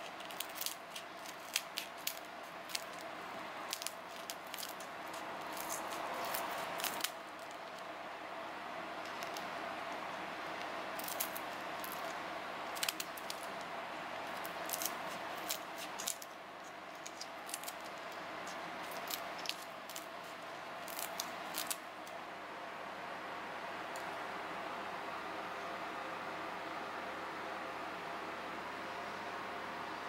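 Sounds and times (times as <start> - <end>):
steady background hum: 0.0 - 30.0
scissors snipping shells: 11.0 - 13.5, 14.3 - 21.8.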